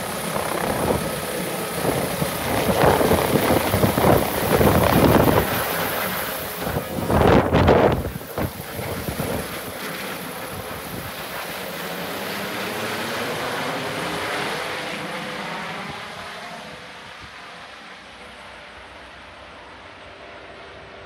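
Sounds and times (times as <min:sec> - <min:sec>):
helicopter rotor and turbine: 0:00.0 - 0:21.0
wind buffeting microphone: 0:00.3 - 0:09.8.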